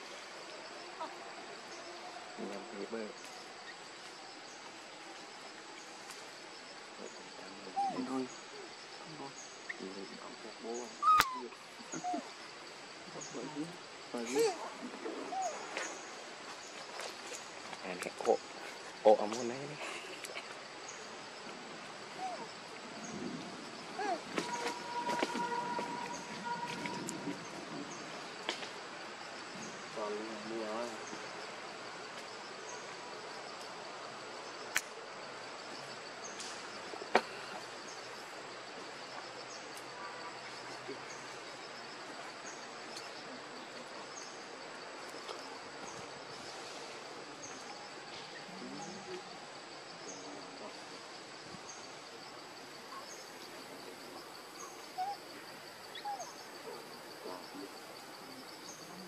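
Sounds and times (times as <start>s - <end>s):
high insect drone: 0.0s - 59.0s
faint short calls: 11.0s - 12.3s.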